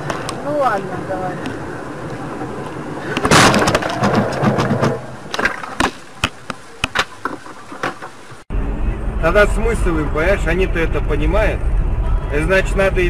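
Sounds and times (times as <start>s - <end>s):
vehicle crash: 3.0s - 6.2s
sharp clicks and knocks: 3.2s - 8.2s.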